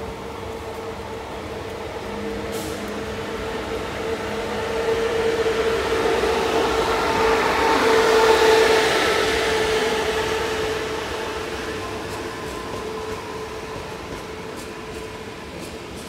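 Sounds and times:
electric train running: 3.5 - 16.0.

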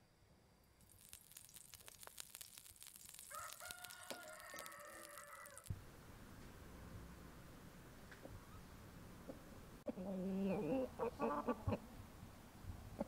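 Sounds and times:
oil crackling in a pan: 0.8 - 5.7
rooster crowing: 3.3 - 5.7.

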